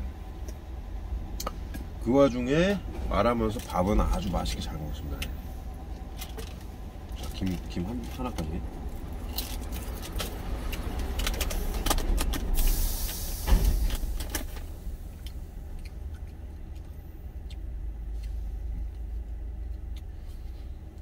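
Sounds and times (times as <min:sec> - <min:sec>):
truck cab rumble: 0:00.0 - 0:21.0
handling clicks and rustles: 0:03.2 - 0:12.6
short hiss: 0:12.6 - 0:14.2
loud thump: 0:13.4 - 0:14.2.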